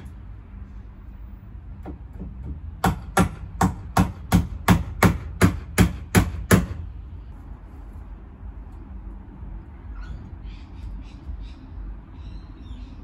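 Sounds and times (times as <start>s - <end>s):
hammering on wood: 1.8s - 6.9s.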